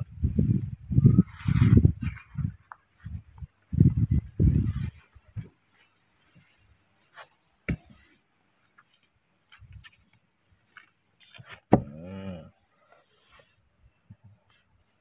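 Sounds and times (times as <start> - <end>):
man humming: 11.8 - 12.6.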